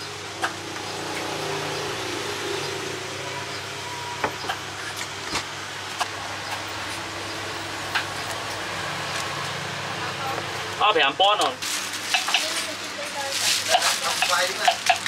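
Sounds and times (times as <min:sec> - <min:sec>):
motor engine droning: 0:00.0 - 0:10.8
street noise: 0:00.0 - 0:15.0.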